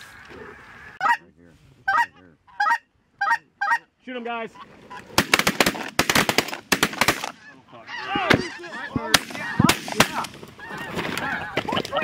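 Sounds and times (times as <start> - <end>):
geese honking: 0.0 - 6.0, 7.1 - 12.0
shotgun blasts: 5.1 - 7.4.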